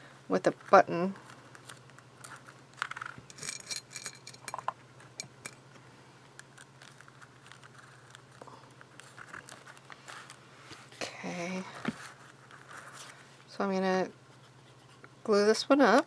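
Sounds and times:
low steady hum: 0:00.0 - 0:16.0
paper rustling: 0:00.6 - 0:03.2, 0:06.6 - 0:11.0, 0:11.6 - 0:13.3.

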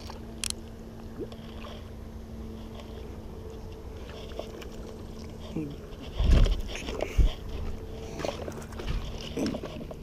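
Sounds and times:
faint steady hum: 0:00.0 - 0:10.0
moving water rumble: 0:00.0 - 0:10.0
wind on microphone: 0:06.1 - 0:07.7.

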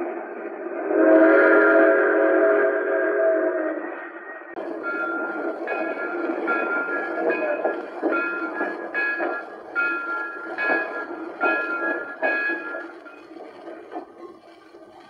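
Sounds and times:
train running rhythmically: 0:04.5 - 0:15.0.

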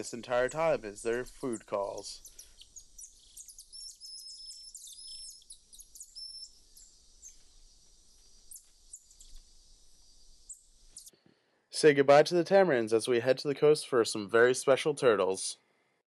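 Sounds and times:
monkeys chirping: 0:00.0 - 0:11.1.

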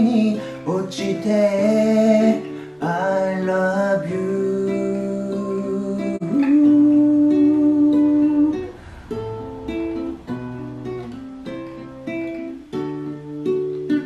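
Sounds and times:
acoustic guitar chords: 0:00.0 - 0:14.0.

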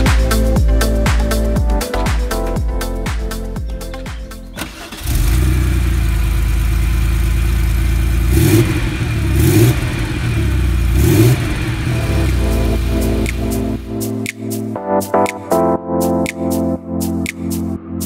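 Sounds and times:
car engine idling: 0:04.6 - 0:13.4
engine throttle blips: 0:04.6 - 0:13.9.

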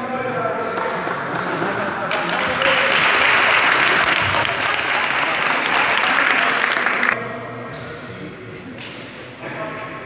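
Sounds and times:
crowd applauding: 0:00.8 - 0:07.2.

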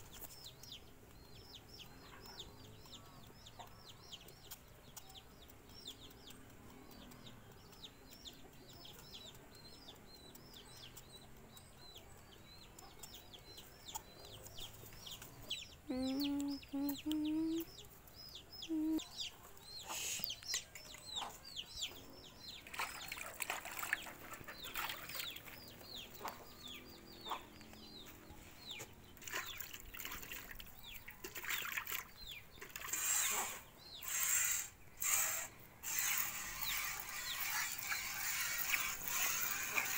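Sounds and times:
birds chirping: 0:00.0 - 0:39.9.

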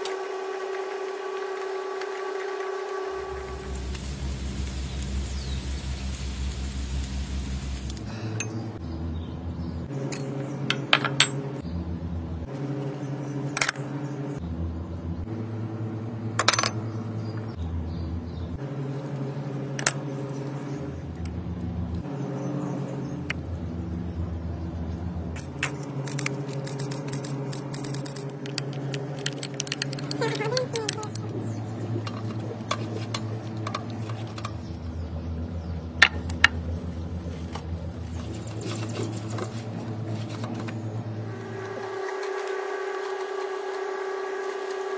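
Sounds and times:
chicken wings sizzling on charcoal: 0:01.6 - 0:08.3.

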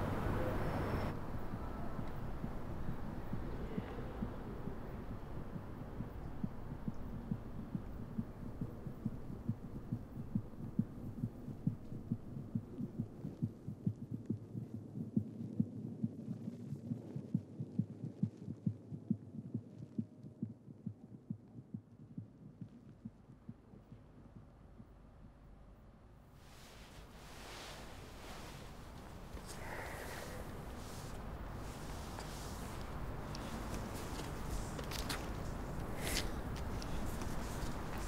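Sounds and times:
muffled heartbeat: 0:01.1 - 0:26.3.

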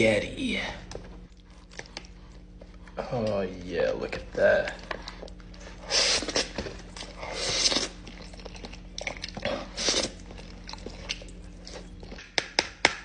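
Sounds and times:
wet chewing: 0:01.3 - 0:03.3, 0:04.6 - 0:12.3.

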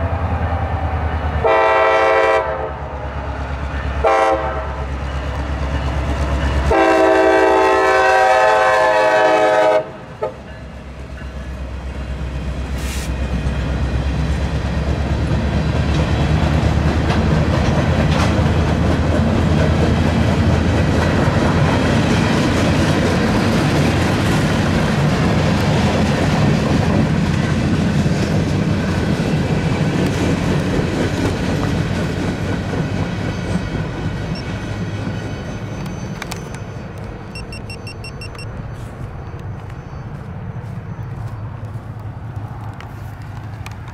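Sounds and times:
freight cars rumbling: 0:00.0 - 0:01.5, 0:02.4 - 0:08.0, 0:09.8 - 0:43.9
train horn blast: 0:00.3 - 0:03.0, 0:04.0 - 0:04.9, 0:06.7 - 0:10.4
wheels clicking over rail joints: 0:14.4 - 0:37.4, 0:41.6 - 0:43.9.

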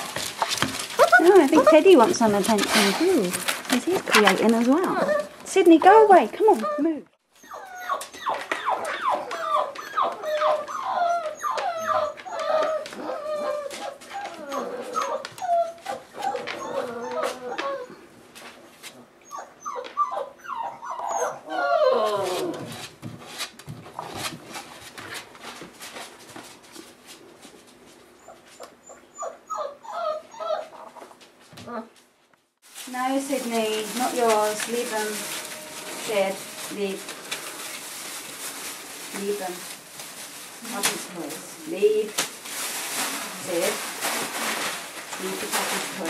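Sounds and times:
puppies whining: 0:00.0 - 0:18.1, 0:19.0 - 0:22.8, 0:28.2 - 0:31.2, 0:33.3 - 0:41.3.

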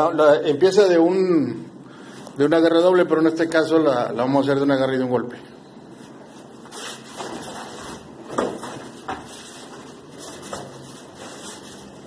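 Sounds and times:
cotton uniforms rustling: 0:05.9 - 0:12.0
feet shuffling on padded mat: 0:05.9 - 0:12.0.

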